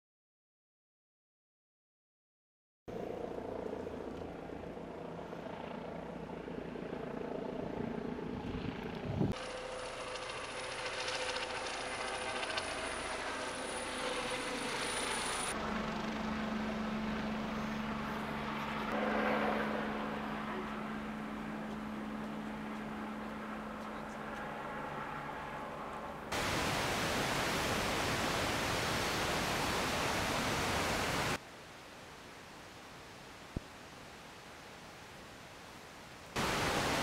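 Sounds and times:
helicopter hovering hum: 0:02.9 - 0:31.4
loud even hiss: 0:26.3 - 0:31.4, 0:36.4 - 0:37.0
faint steady hiss: 0:26.3 - 0:37.0.

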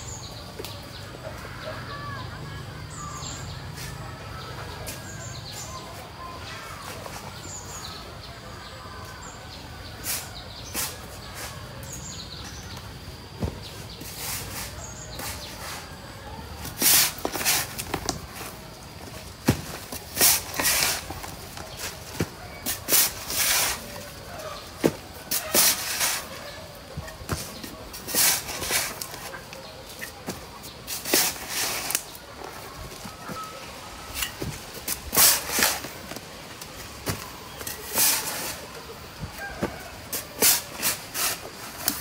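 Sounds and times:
shovel scraping soil: 0:10.0 - 0:12.7, 0:13.8 - 0:15.9, 0:16.6 - 0:18.6, 0:19.4 - 0:32.5, 0:34.1 - 0:36.2, 0:37.0 - 0:38.8, 0:39.4 - 0:42.0.

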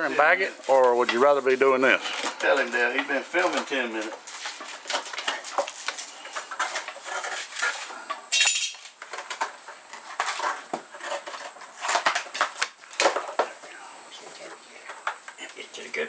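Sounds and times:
palm layers snapping and cracking: 0:08.3 - 0:13.8.

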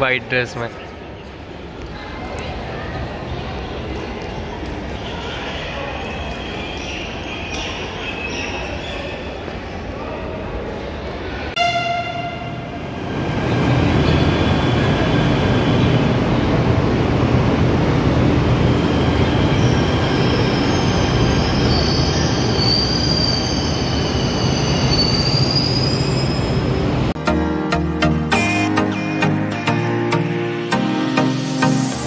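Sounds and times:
train horn tone: 0:11.6 - 0:12.8
wheels and brakes squealing: 0:18.7 - 0:27.0.

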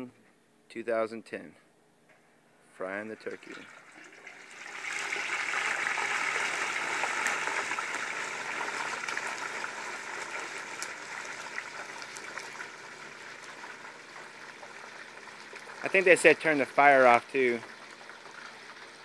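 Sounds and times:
hot oil sizzling and bubbling: 0:03.2 - 0:19.0
crackling pops: 0:06.5 - 0:15.8.

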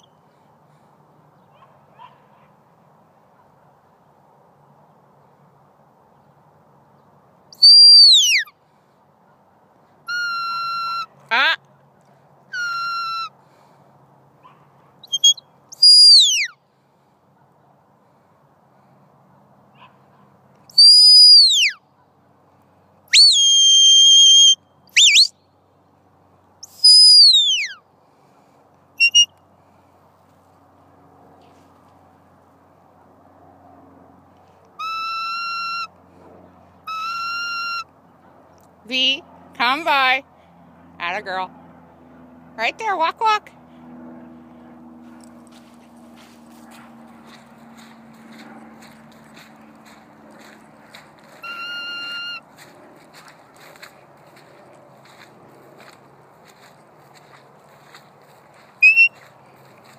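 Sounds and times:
sheepdog whistle blasts: 0:07.6 - 0:08.4, 0:15.0 - 0:16.5, 0:23.2 - 0:25.3, 0:29.0 - 0:29.3, 0:58.8 - 0:59.2.

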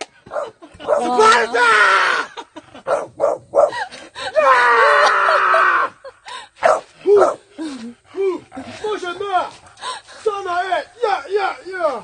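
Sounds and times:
man yelling: 0:01.0 - 0:02.3.

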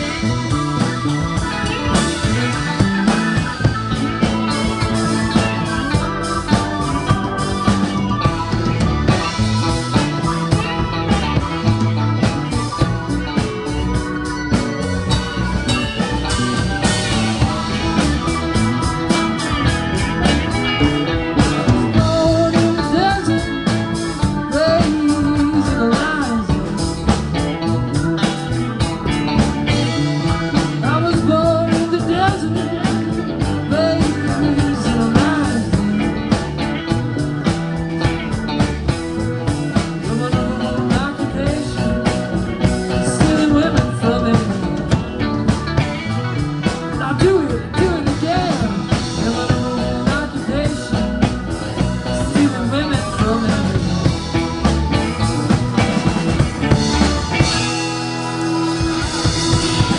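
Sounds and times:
live rock band playing: 0:00.0 - 0:59.9
man singing: 0:21.0 - 0:27.2, 0:30.4 - 0:37.0, 0:39.7 - 0:45.5, 0:46.6 - 0:55.6.

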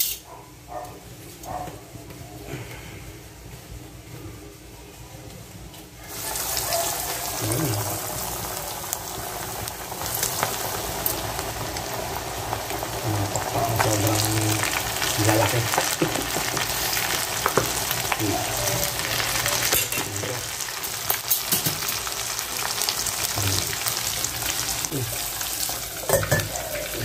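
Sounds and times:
chicken deep-frying in hot oil: 0:06.0 - 0:27.0.

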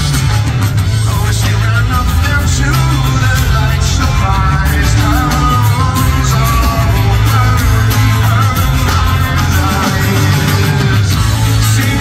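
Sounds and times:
acoustic guitar: 0:00.0 - 0:12.0
drums: 0:00.0 - 0:12.0
electric bass: 0:00.0 - 0:12.0
live rock band playing: 0:00.0 - 0:12.0.

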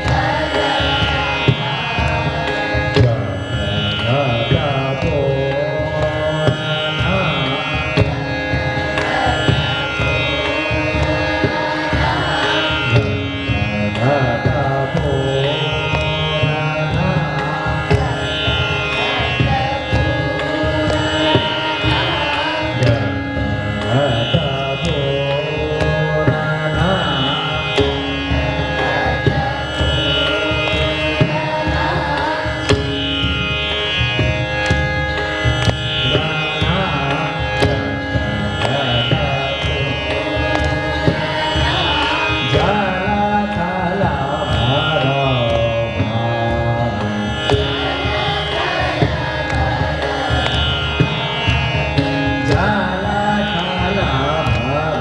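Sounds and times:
man singing: 0:00.0 - 0:08.2, 0:09.1 - 0:18.1, 0:22.8 - 0:31.5, 0:36.0 - 0:40.3, 0:42.2 - 0:47.0, 0:52.3 - 0:55.0
steady drone: 0:00.0 - 0:55.0.

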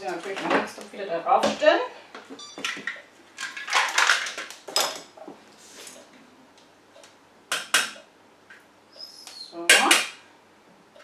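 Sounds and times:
kitchen things clattering: 0:02.3 - 0:05.3.

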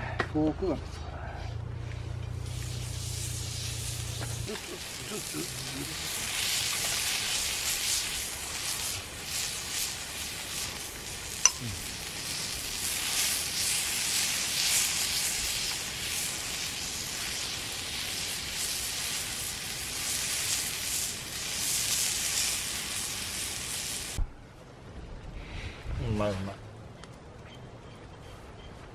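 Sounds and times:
steak sizzling and crackling: 0:02.2 - 0:24.2.

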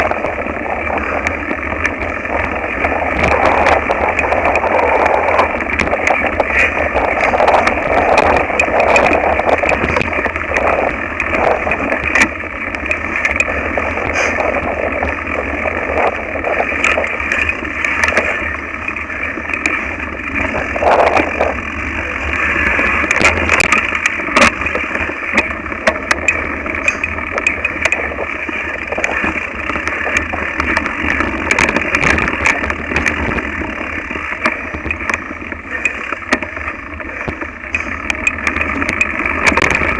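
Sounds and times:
bike rattling over stony ground: 0:00.0 - 0:39.9
low rumble of wind: 0:00.0 - 0:39.9.

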